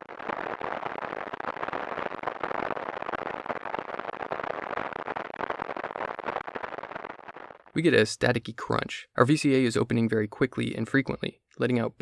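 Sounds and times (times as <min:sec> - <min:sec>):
synthesized rain crackles: 0:00.0 - 0:10.0.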